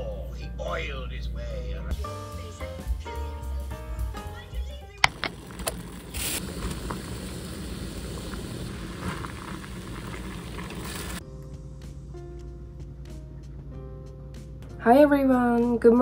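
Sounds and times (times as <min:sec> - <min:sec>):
background music: 0:00.0 - 0:05.8, 0:11.2 - 0:16.0
water boiling in a pot: 0:05.1 - 0:11.2.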